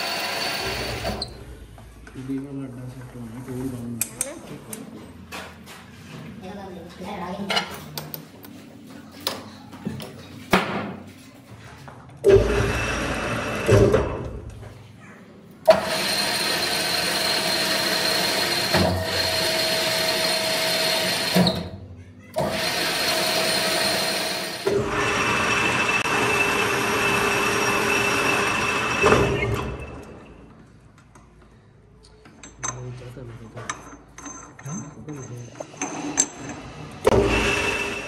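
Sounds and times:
machine whirring with high whine: 0:15.7 - 0:21.7, 0:22.4 - 0:30.5, 0:36.9 - 0:38.0.

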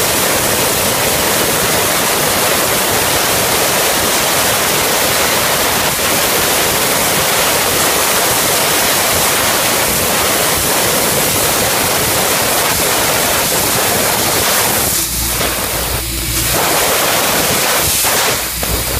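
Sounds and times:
laser cutter hissing: 0:00.0 - 0:18.9
low machine hum: 0:12.9 - 0:17.8.

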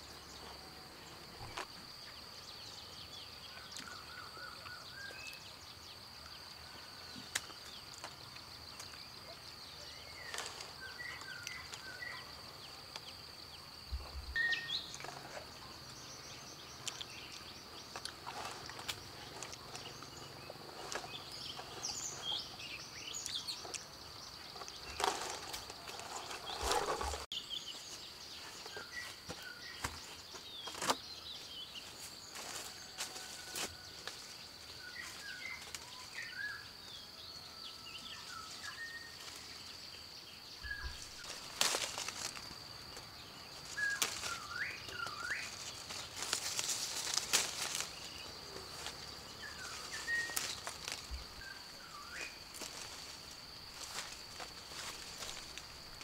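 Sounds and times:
bird chirps: 0:01.1 - 0:32.1, 0:34.7 - 0:41.5, 0:42.8 - 0:53.0
handling rustles and knocks: 0:24.5 - 0:27.3.

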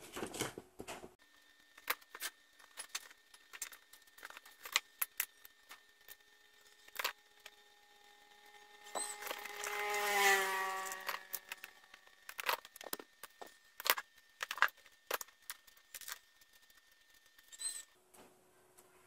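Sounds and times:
small parts clicking and rattling: 0:01.2 - 0:18.0
passing vehicle engine: 0:09.1 - 0:11.5.

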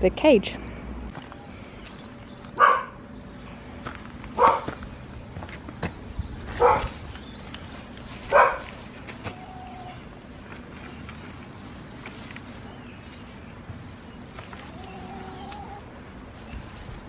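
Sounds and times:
dog barking: 0:02.6 - 0:03.0, 0:04.4 - 0:04.7, 0:06.6 - 0:06.9, 0:08.3 - 0:08.7.

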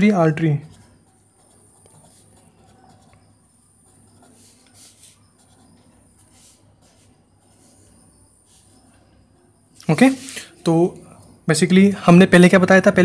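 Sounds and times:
pen scratching on paper: 0:00.0 - 0:09.5.

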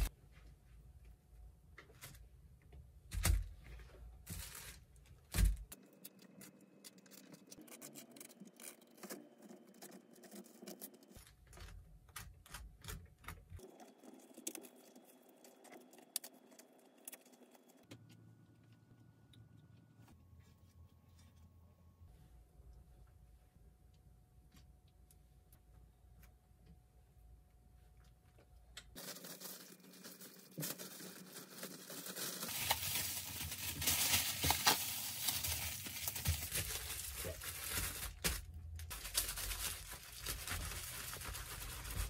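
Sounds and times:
plastic sheet rustling: 0:04.2 - 0:05.7, 0:29.0 - 0:42.0.

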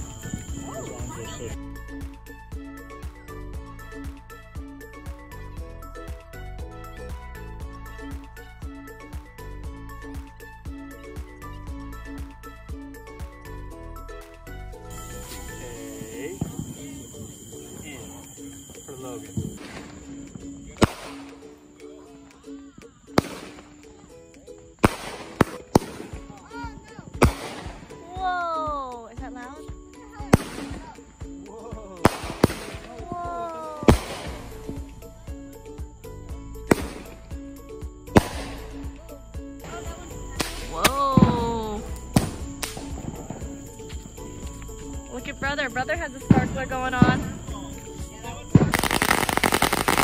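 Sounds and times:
fireworks cracking: 0:00.0 - 0:01.6, 0:14.9 - 0:22.3, 0:23.0 - 0:35.0, 0:36.6 - 0:37.4, 0:38.1 - 0:38.9, 0:39.7 - 0:50.0
background music with held notes: 0:00.0 - 0:50.0
fireworks bangs: 0:15.9 - 0:18.3, 0:19.2 - 0:21.4, 0:24.8 - 0:26.4, 0:27.0 - 0:28.0, 0:30.3 - 0:31.0, 0:32.0 - 0:34.8, 0:38.1 - 0:38.7, 0:48.6 - 0:50.0.

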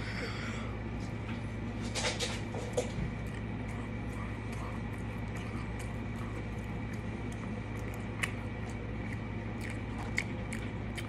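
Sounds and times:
steady low hum: 0:00.0 - 0:11.0
person chewing food: 0:02.9 - 0:11.0.

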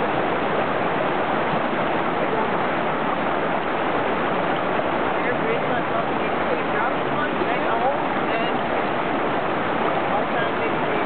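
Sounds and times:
creek water rushing: 0:00.0 - 0:11.0.

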